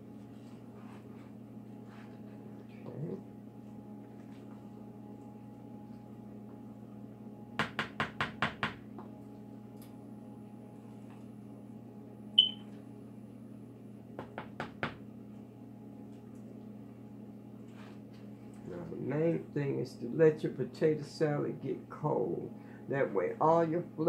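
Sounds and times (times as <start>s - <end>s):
low appliance hum: 0.0s - 24.0s
short high beep: 12.4s - 12.6s.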